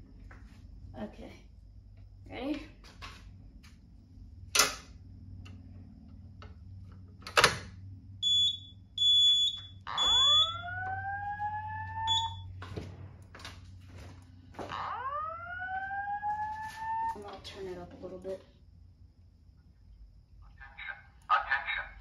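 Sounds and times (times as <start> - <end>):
short high beeps: 8.2 - 10.6, 12.0 - 12.4
fire alarm whoop tone: 8.2 - 12.6, 14.7 - 17.2.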